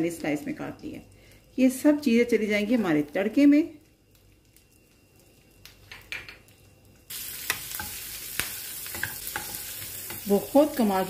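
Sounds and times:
food sizzling in butter: 0:07.1 - 0:11.0.

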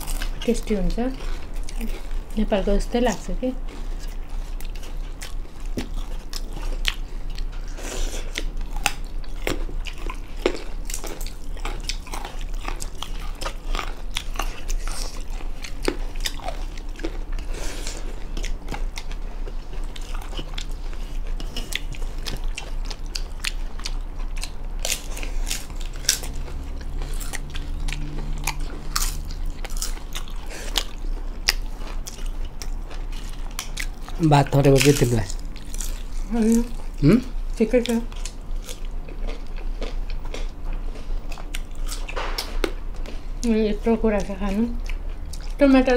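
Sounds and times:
people chewing food: 0:00.0 - 0:45.9
crunching: 0:19.7 - 0:36.8.

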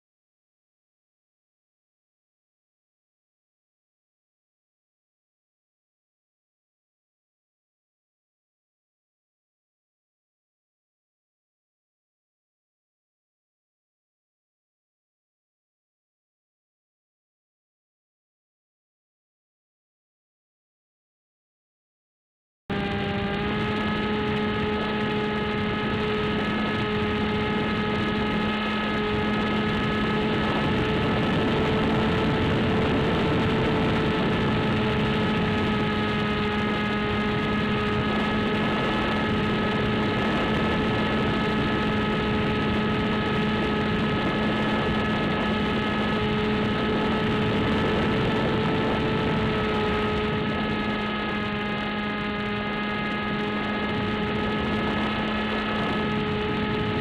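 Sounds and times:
model plane motor whine: 0:22.7 - 0:57.0
wind rush: 0:22.7 - 0:57.0.

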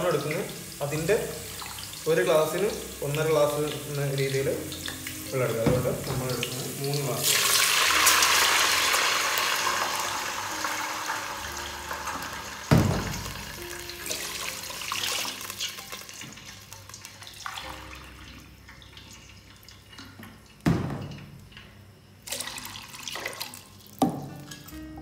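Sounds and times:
water pouring into a cup: 0:07.0 - 0:19.8, 0:22.2 - 0:24.0.

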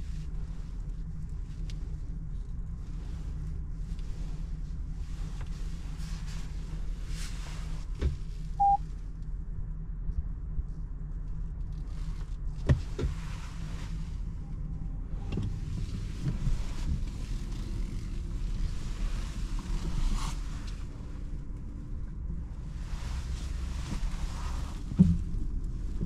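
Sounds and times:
car cabin low hum: 0:00.0 - 0:26.0
short electronic beep: 0:08.6 - 0:08.8.

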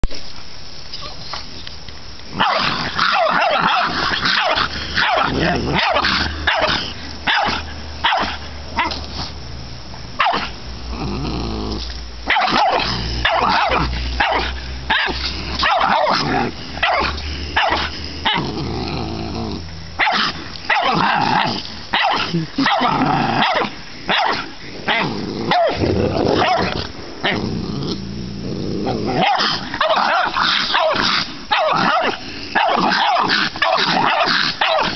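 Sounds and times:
dog growling: 0:02.4 - 0:07.6, 0:10.8 - 0:34.9
dog barking: 0:02.4 - 0:09.0, 0:10.2 - 0:10.5, 0:12.3 - 0:18.4, 0:20.0 - 0:25.8, 0:26.4 - 0:26.8, 0:29.2 - 0:34.9.

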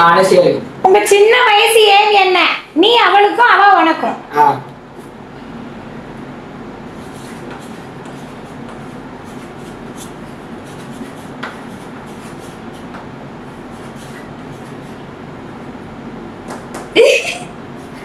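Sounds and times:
steady background hum: 0:00.0 - 0:18.0
chalk scratching on slate: 0:07.0 - 0:15.0.

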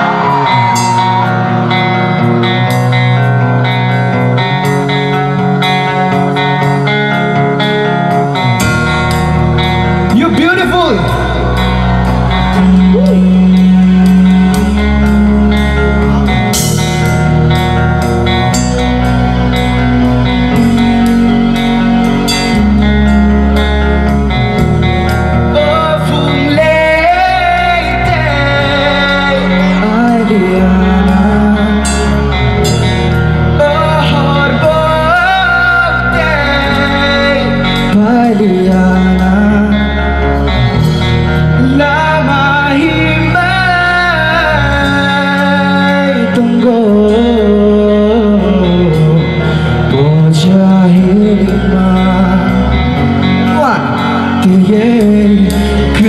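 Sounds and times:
live rock band: 0:00.0 - 0:56.0
man singing: 0:10.1 - 0:14.8, 0:25.4 - 0:32.6, 0:33.4 - 0:40.6, 0:41.3 - 0:56.0.

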